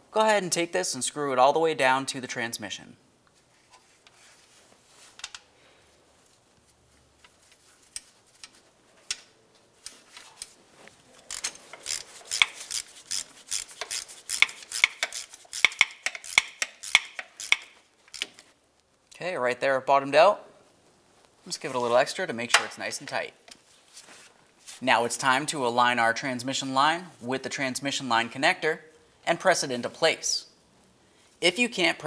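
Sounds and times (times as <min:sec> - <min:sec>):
hand ratchet clicking: 0:11.3 - 0:18.4.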